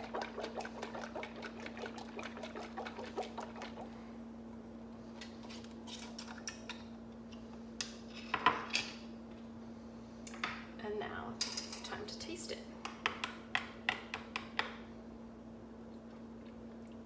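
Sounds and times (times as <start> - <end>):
glass jar of liquid shaken: 0.0 - 3.8.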